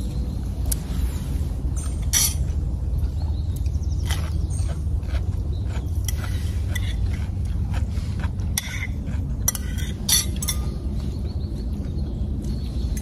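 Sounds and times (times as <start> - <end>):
steady low rumble: 0.0 - 13.0
forks clinking on plates: 9.5 - 10.8.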